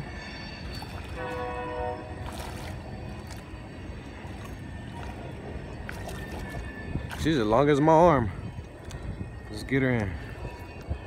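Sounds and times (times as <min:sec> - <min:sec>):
horn-like chord: 0:00.0 - 0:05.6
fish splashing in water: 0:02.1 - 0:07.3.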